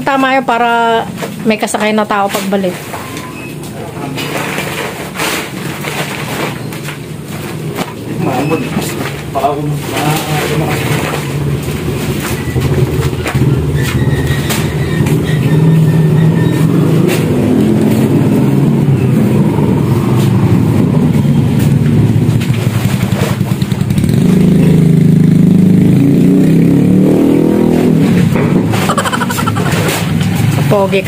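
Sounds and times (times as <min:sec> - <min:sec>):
motorcycle engine revving: 0:07.2 - 0:31.0.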